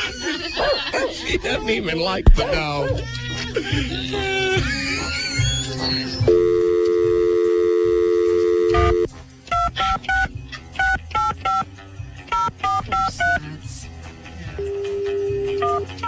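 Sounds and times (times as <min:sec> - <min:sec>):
telephone dial tone: 0:06.3 - 0:09.1
touch-tone dialing beeps: 0:06.3 - 0:11.6, 0:12.3 - 0:13.4, 0:14.6 - 0:15.9.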